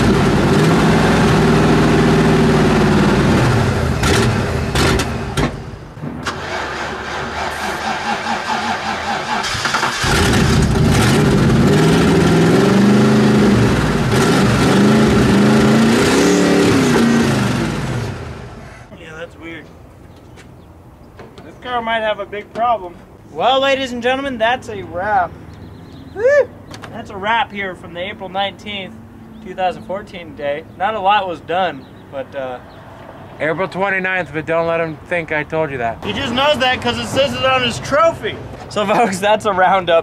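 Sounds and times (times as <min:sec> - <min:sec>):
car engine revving: 0:00.0 - 0:18.6
starter motor cranking: 0:06.2 - 0:10.9.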